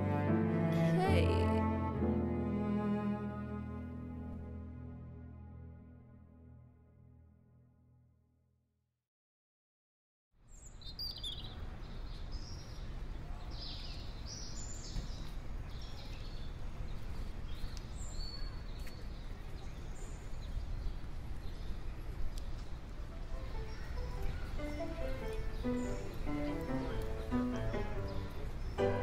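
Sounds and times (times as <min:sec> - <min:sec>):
birds chirping: 0:10.5 - 0:29.0.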